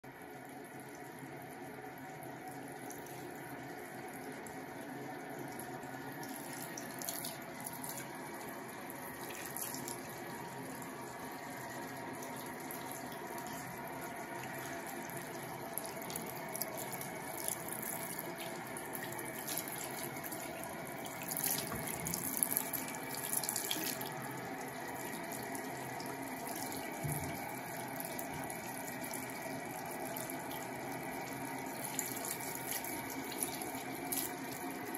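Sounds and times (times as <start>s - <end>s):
tap running into sink: 21.4s - 22.4s, 27.0s - 27.4s.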